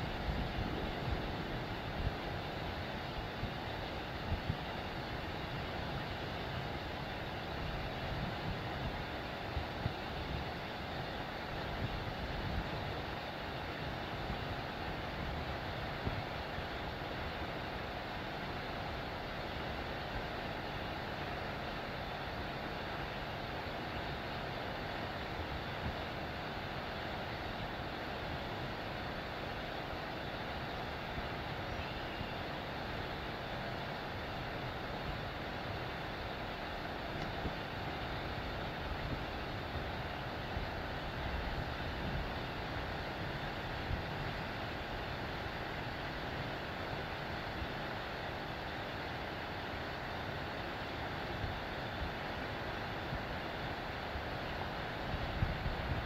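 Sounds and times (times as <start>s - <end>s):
low background rumble: 0.0s - 5.9s
low outdoor rumble: 0.0s - 13.0s.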